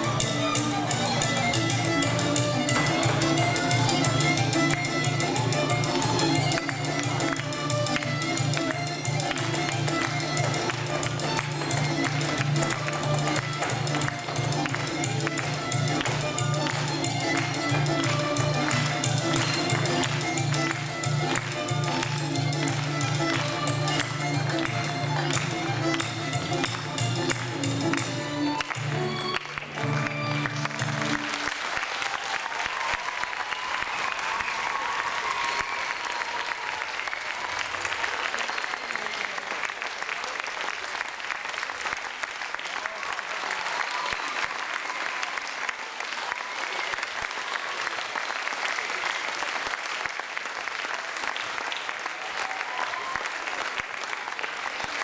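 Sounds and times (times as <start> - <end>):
live folk band music: 0.0 - 31.7
audience applauding: 2.0 - 55.0.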